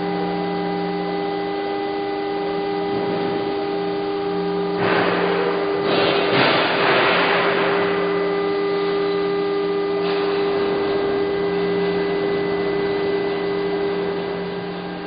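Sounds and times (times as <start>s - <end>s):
machine humming and hissing: 0.0s - 15.0s.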